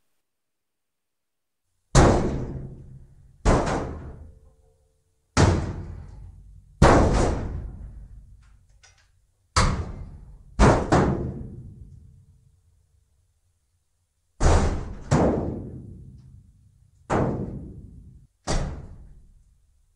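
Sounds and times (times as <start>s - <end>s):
hollow blows on steel dumpster: 5.4s - 8.2s.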